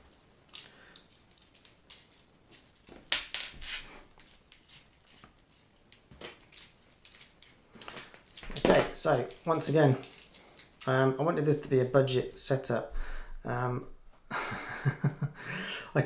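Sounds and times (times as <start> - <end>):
light metal clicks and scrapes: 0.1 - 11.0.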